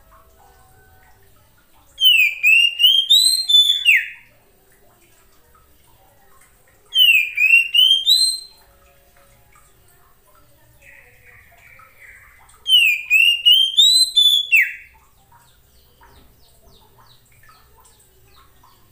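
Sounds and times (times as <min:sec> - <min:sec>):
bird singing whistled notes: 0:02.0 - 0:04.3, 0:07.0 - 0:08.6, 0:12.7 - 0:14.9.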